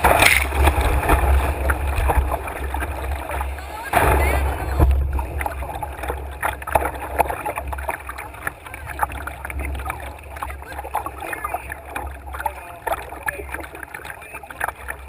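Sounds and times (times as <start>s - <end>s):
rapids rushing: 0.0s - 15.0s
water splashing against canoe: 0.0s - 15.0s.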